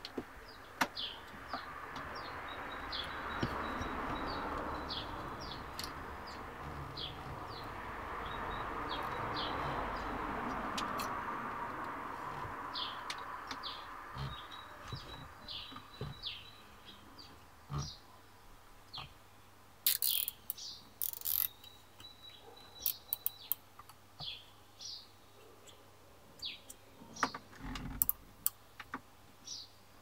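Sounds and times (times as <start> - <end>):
birds chirping: 0.4 - 28.1.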